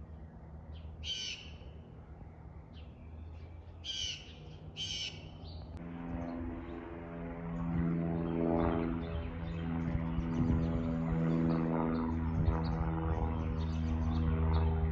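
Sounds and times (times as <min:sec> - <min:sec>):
short bird calls: 0:01.0 - 0:01.8, 0:03.8 - 0:05.6
low steady drone: 0:05.6 - 0:14.9.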